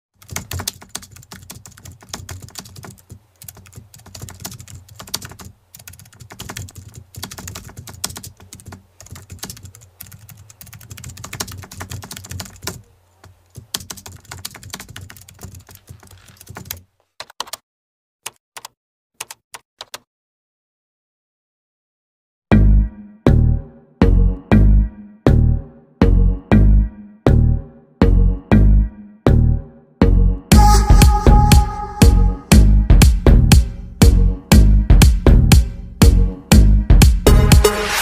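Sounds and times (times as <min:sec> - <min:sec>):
keyboard typing: 0:00.2 - 0:17.6, 0:18.2 - 0:20.1.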